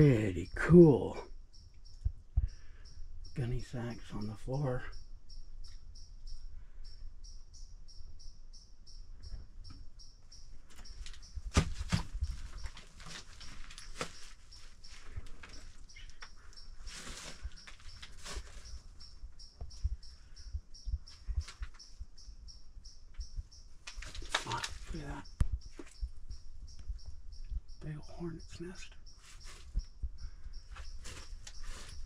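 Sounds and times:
insect chirping: 0:00.0 - 0:32.0
knocks and thumps of movement: 0:10.6 - 0:20.0, 0:23.9 - 0:26.9, 0:29.3 - 0:32.0
rustle: 0:10.8 - 0:19.2, 0:23.8 - 0:26.0, 0:29.2 - 0:29.8, 0:30.7 - 0:32.0.

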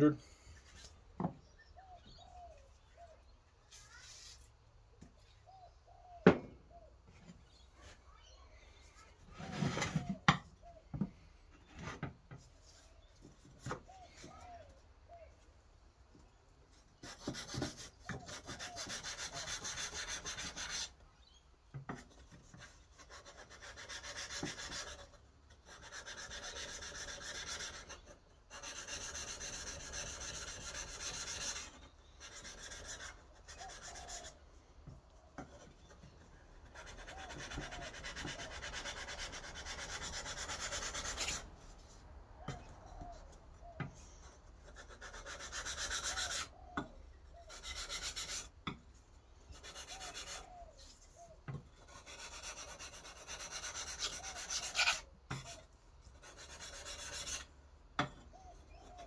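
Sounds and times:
knife blade rasping on sandpaper: 0:17.1 - 0:21.0, 0:23.0 - 0:34.3, 0:36.8 - 0:41.4, 0:51.8 - 0:55.6, 0:56.2 - 0:57.5.

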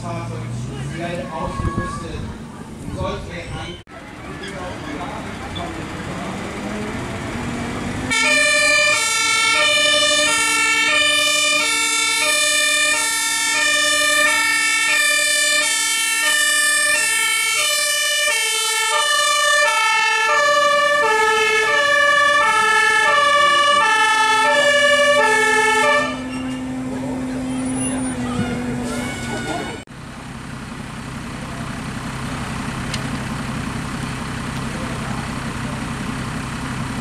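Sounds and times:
fire engine two-tone siren: 0:08.1 - 0:29.9.

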